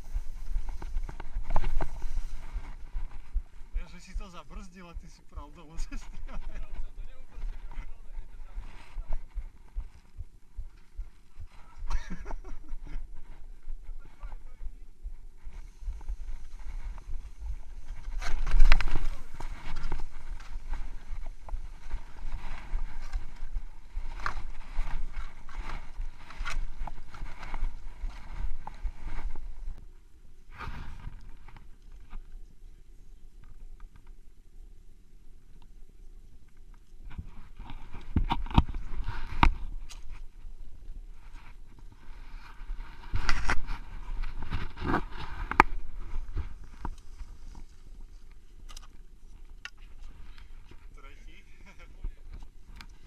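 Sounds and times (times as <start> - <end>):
sharp ski scrapes: 0.0 - 2.9, 41.3 - 46.4
skis hissing over snow: 0.0 - 2.9
skis and poles clicking: 0.0 - 3.2, 16.0 - 29.8, 41.3 - 53.0
skis scraping over snow: 0.0 - 9.5, 15.5 - 29.8
wind rumbling on microphone: 0.0 - 34.4, 35.3 - 53.0.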